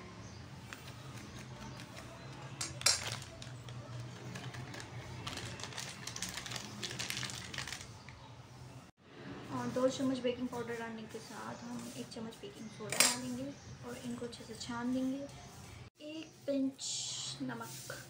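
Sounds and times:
small crackles: 0.6 - 8.3
plastic packet crinkling: 0.9 - 8.2.

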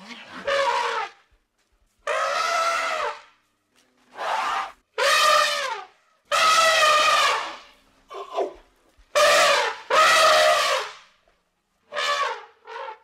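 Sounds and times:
elephant trumpeting: 0.2 - 1.2, 2.0 - 3.2, 4.1 - 8.6, 9.2 - 10.9.

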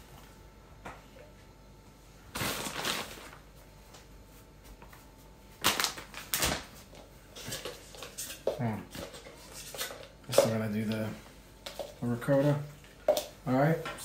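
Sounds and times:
rustling plastic bag handling: 2.3 - 8.2.

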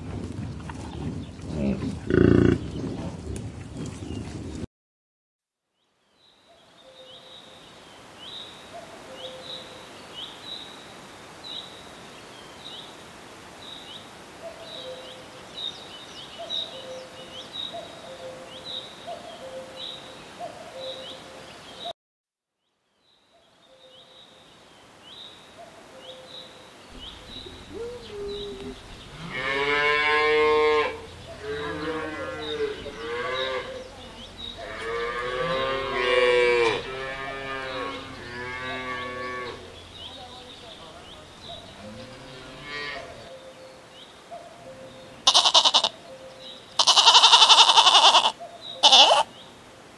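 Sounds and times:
cows mooing: 27.5 - 39.7, 41.7 - 43.2.

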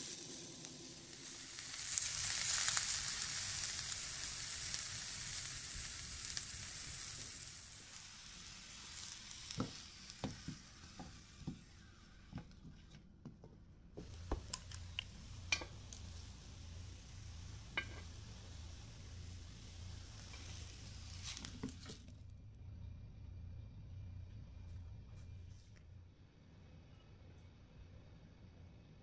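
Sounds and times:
faint sizzle from pan: 0.0 - 12.9, 14.0 - 22.3
chopsticks tapping pan and plate: 14.0 - 15.8, 17.7 - 18.1.

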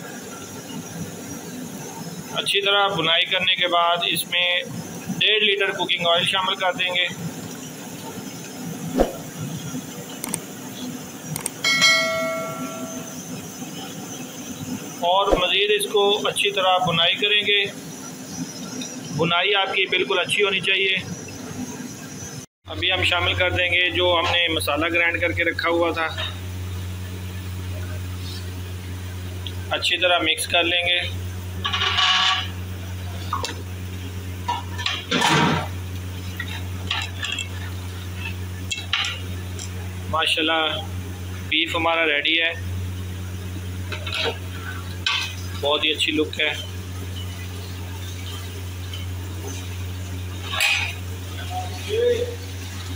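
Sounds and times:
steady low hum: 0.0 - 20.0, 20.6 - 52.9
clicks: 10.2 - 10.5, 11.3 - 11.6
bell-like ding: 11.6 - 13.3.

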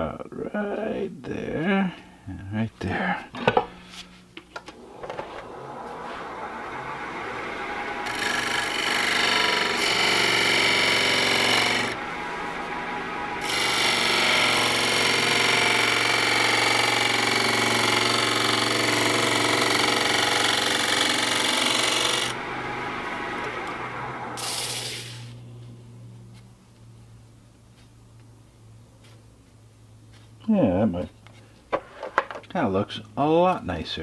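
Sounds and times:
lathe humming: 3.3 - 25.5
turning tool cutting wood: 4.7 - 25.4.

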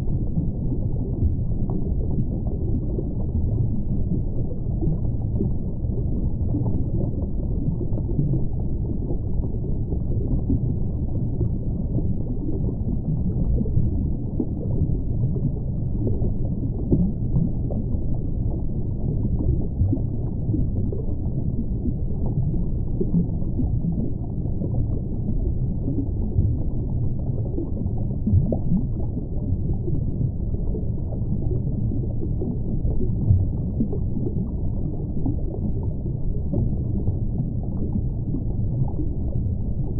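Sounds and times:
muffled underwater rumble: 0.0 - 39.9
underwater gurgles: 0.0 - 39.9.

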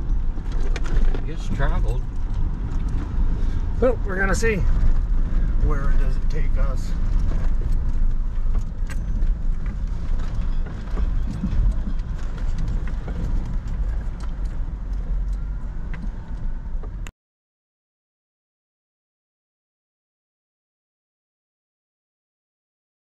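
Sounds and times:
engine and tyre rumble: 0.0 - 17.1
gravel clicks and rattling: 0.0 - 17.1.

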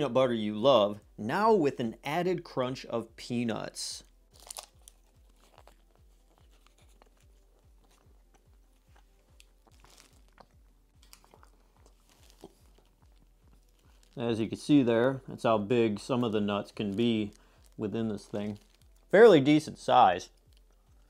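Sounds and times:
crunching and chewing: 4.3 - 14.2, 17.0 - 19.1.

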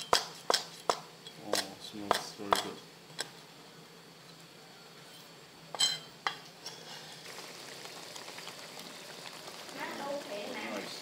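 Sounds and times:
sauce sizzling in a pan: 6.6 - 11.0.

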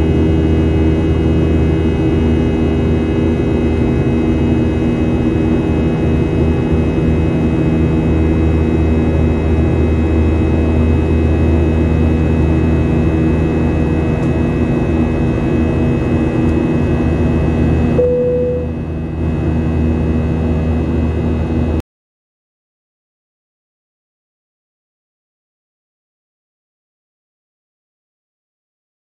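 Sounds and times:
airplane cabin engine drone: 0.0 - 21.8
short steady tone: 18.0 - 18.8.

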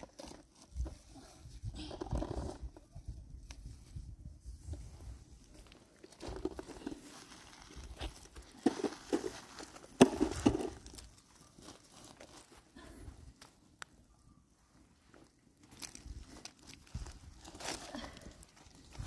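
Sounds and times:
crackling handling noise: 4.6 - 19.0.

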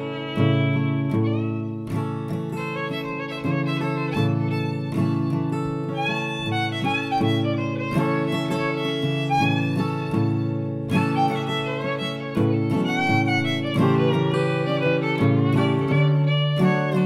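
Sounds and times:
fiddle playing improvised tune: 0.0 - 17.0.

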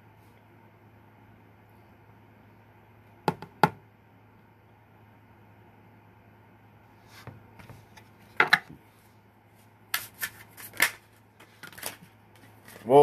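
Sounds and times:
cards shuffling: 9.9 - 12.9.

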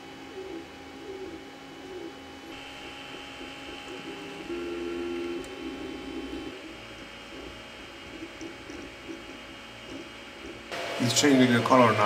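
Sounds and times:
fans whining: 0.0 - 12.0
printer stepper motors whirring: 2.5 - 12.0.

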